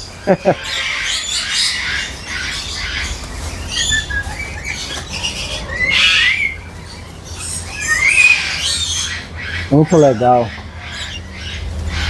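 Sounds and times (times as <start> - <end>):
birds chirping and squawking: 0.0 - 12.0
sliding whistled bird calls: 0.8 - 12.0.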